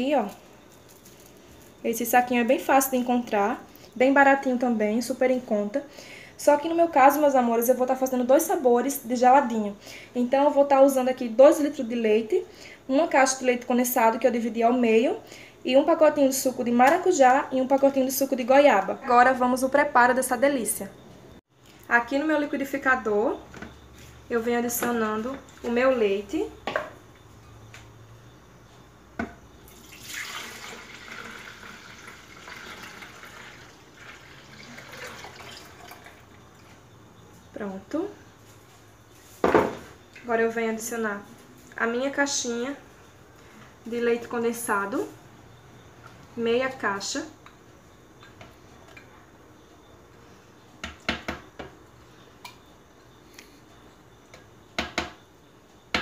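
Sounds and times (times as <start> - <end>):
milk pouring into blender jar: 29.7 - 36.2.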